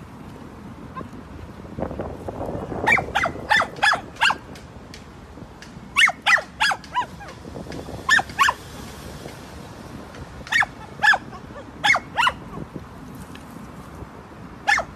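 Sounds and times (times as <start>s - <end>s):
small dog yapping: 2.8s - 4.4s, 6.0s - 7.4s, 8.1s - 8.6s, 10.5s - 12.6s, 14.7s - 14.9s.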